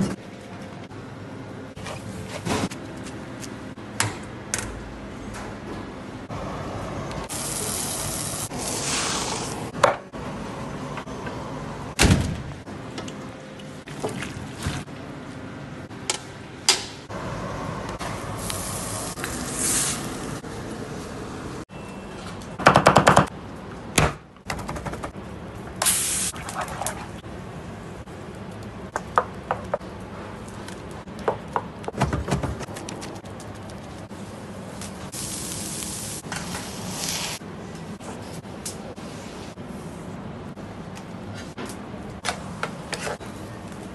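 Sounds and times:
skewers sizzling on grill: 7.3 - 9.7, 18.3 - 20.4, 35.0 - 37.4.

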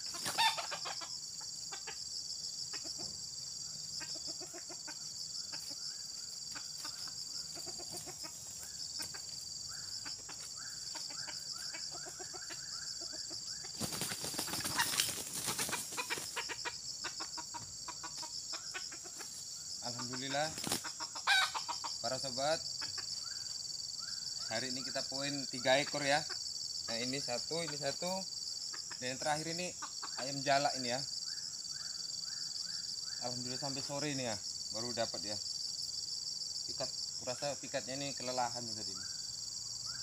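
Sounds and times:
roosters clucking: 0.0 - 39.4
high insect buzz: 0.0 - 40.0
wing flapping: 13.6 - 16.6, 20.5 - 21.0.

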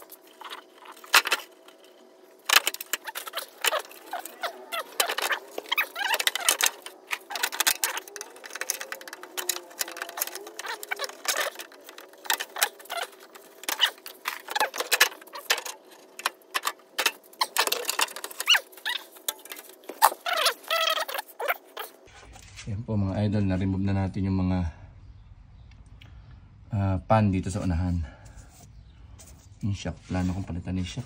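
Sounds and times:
plastic panel clicking and squeaking: 0.0 - 22.0.

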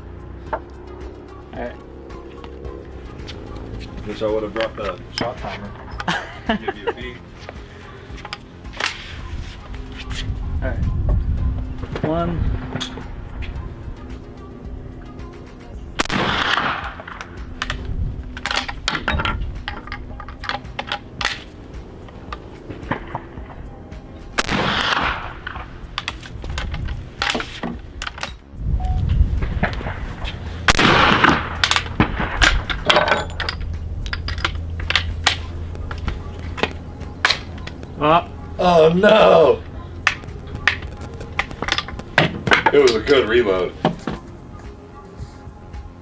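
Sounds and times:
rifle shots: 16.0 - 17.2, 24.4 - 25.7, 30.7 - 32.8.

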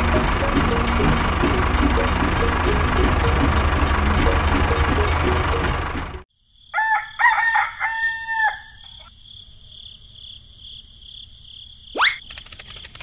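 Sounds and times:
steady high tone: 0.0 - 6.2
rooster crowing: 6.7 - 9.1
rapid clicking: 12.2 - 13.0.

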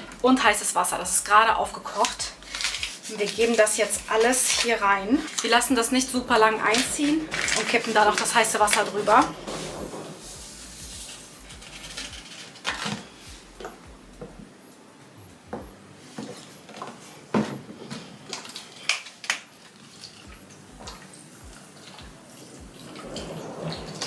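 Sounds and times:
plastic bottles clicking and knocking: 2.0 - 10.1, 11.9 - 13.8.

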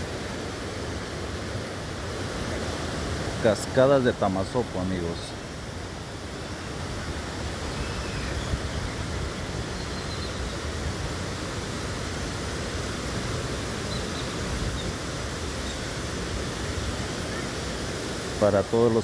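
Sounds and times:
waterfalls pouring into a pool: 10.4 - 19.0.

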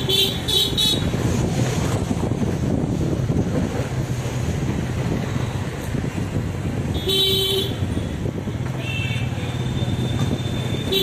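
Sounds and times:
wind noise: 0.7 - 8.9
vehicle horn beeping: 7.0 - 7.8, 8.8 - 11.0.

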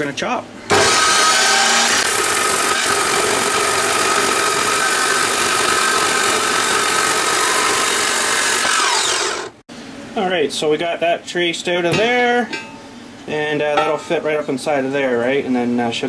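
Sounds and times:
chop saw grinding metal: 0.7 - 9.6
motor whine winding down: 0.7 - 9.6.

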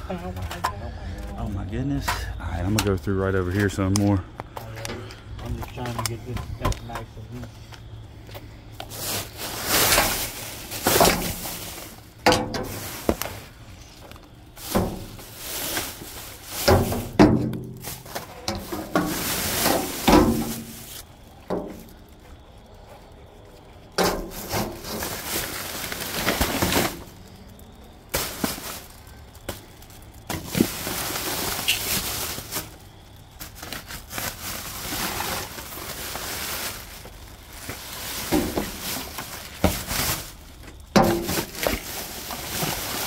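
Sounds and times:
rummaging through dumpster: 8.9 - 22.0, 24.0 - 27.4, 28.1 - 43.0.

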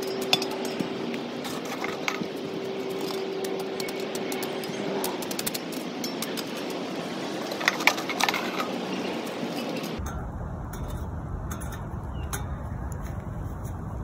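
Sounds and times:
coals clinking on metal shovel: 0.0 - 8.8
low rumble: 10.0 - 14.0.

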